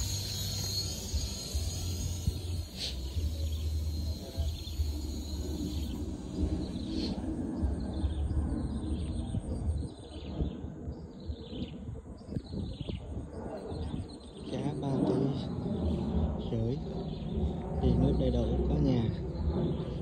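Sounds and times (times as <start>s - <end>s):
low uneven rumble: 13.6s - 20.0s.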